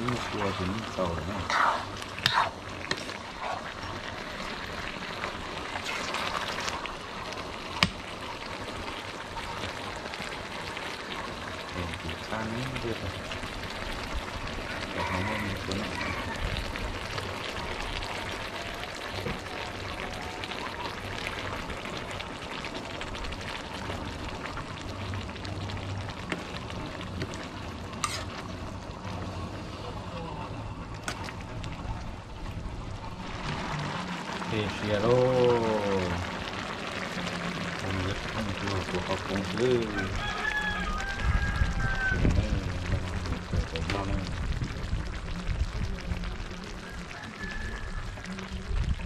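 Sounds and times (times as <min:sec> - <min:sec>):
spatula stirring in a wok: 0:00.0 - 0:08.2, 0:26.3 - 0:28.7
food sizzling in a wok: 0:00.0 - 0:49.0
metal spatula scraping a wok: 0:01.4 - 0:03.8, 0:28.0 - 0:28.5.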